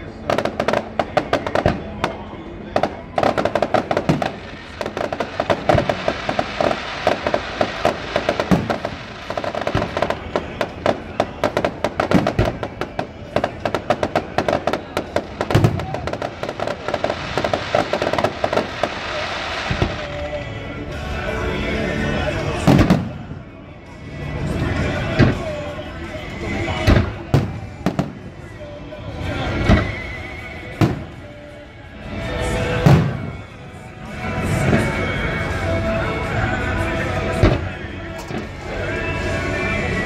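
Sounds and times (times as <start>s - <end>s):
fireworks crackling: 0.0s - 23.6s, 24.2s - 40.0s
fireworks booms: 2.8s - 20.3s, 22.6s - 23.4s, 26.7s - 28.4s, 30.7s - 31.3s, 32.6s - 33.6s.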